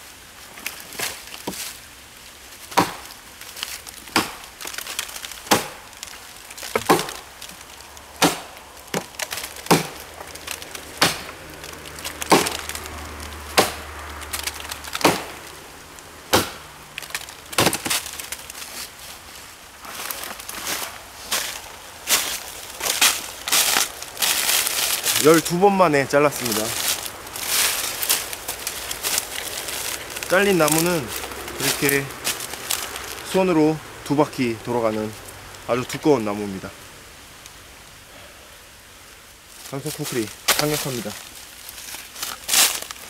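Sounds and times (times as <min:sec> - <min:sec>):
wood splintering: 0:00.5 - 0:36.0, 0:39.7 - 0:43.0
blade chopping into dry wood: 0:02.7 - 0:03.2, 0:04.1 - 0:05.9, 0:06.6 - 0:07.3, 0:08.2 - 0:15.4, 0:16.3 - 0:18.4.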